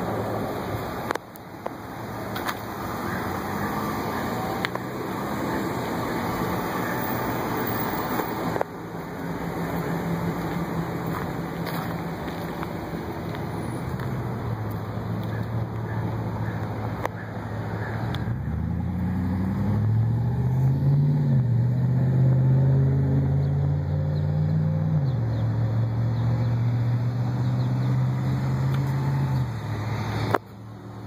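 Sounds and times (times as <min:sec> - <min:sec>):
truck engine humming: 0:00.0 - 0:20.2.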